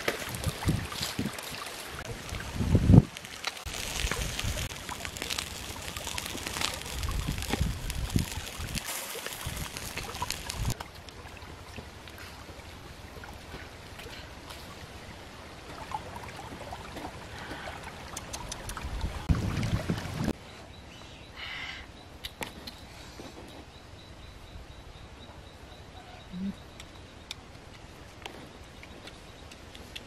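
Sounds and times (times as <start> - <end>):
stream trickling over rocks: 0.0 - 20.4
faint bird calls: 20.9 - 22.0, 25.3 - 27.0.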